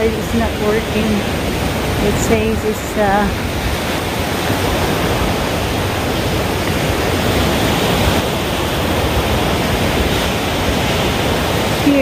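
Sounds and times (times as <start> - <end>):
surf along beach: 0.0 - 12.0
wind rumble on microphone: 0.0 - 12.0.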